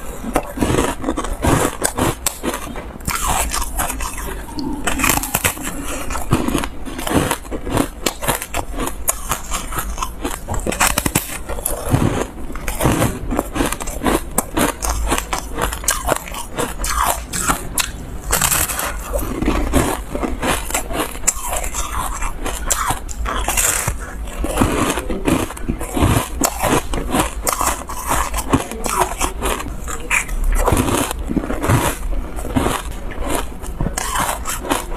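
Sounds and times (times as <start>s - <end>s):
ice crunching while chewed: 0.0s - 34.9s.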